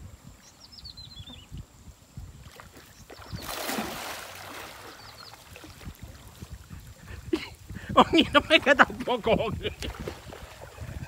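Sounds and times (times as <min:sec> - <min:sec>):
faint bird chirps: 0:00.4 - 0:01.6, 0:04.8 - 0:05.6
water splashing and churning: 0:02.3 - 0:11.0.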